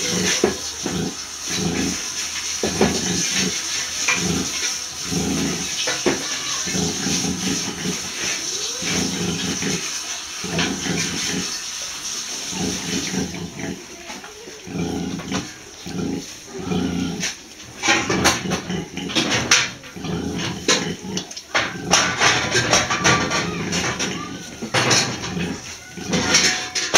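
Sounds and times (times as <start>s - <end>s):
sow grunting: 0.0s - 2.1s, 2.7s - 11.6s, 12.4s - 26.6s
piglets squeaking: 19.8s - 26.6s.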